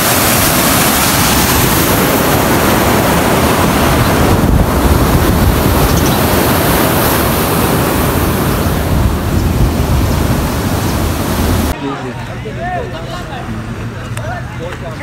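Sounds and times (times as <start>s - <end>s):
fast-flowing water rushing: 0.0s - 11.8s
wind buffeting microphone: 0.0s - 11.8s.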